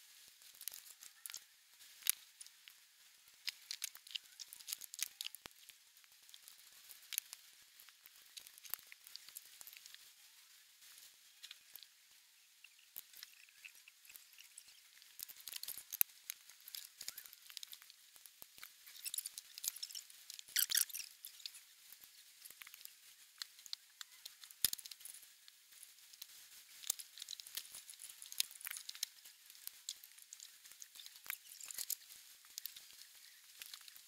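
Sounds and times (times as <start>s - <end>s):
plastic bricks clicking and rattling: 3.4s - 5.7s, 12.7s - 21.6s, 22.4s - 25.2s, 26.2s - 34.0s.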